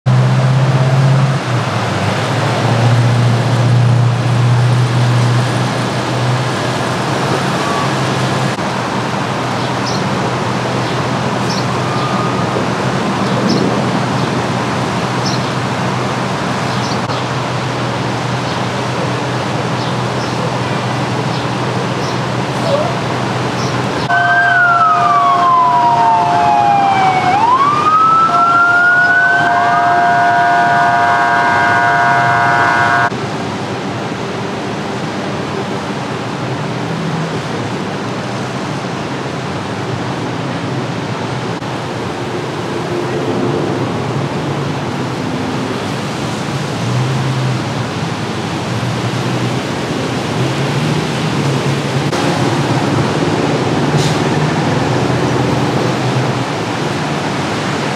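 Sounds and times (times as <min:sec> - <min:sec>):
city traffic hiss: 0:00.1 - 0:57.9
emergency vehicle siren wailing: 0:06.7 - 0:08.6, 0:10.6 - 0:15.0, 0:22.5 - 0:33.1.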